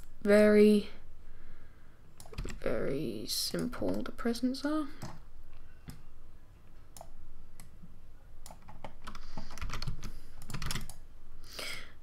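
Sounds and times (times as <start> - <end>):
computer keyboard typing: 2.2 - 2.7, 5.0 - 5.2, 8.4 - 11.0.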